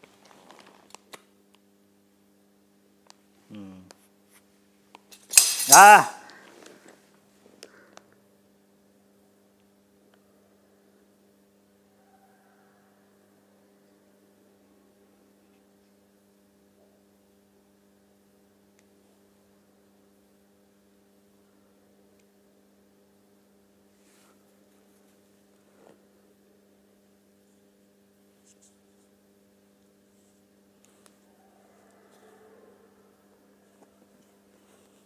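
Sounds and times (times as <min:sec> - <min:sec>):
low electrical hum: 0:00.0 - 0:35.0.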